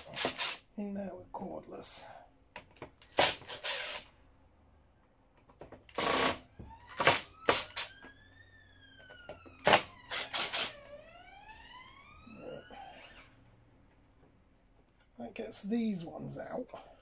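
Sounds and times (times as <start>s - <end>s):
cordless screwdriver running: 0.0s - 0.6s, 3.2s - 4.1s, 5.9s - 6.4s
faint rising and falling whine: 0.0s - 17.0s.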